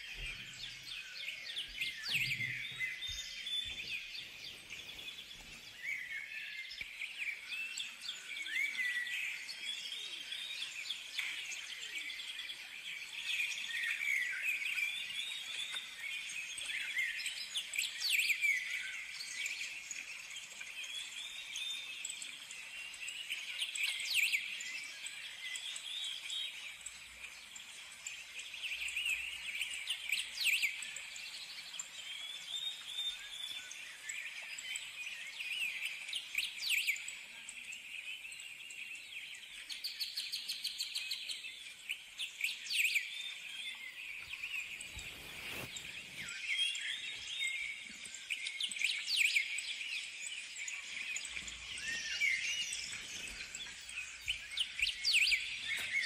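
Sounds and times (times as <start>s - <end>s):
birds chirping and calling: 0.1s - 6.9s.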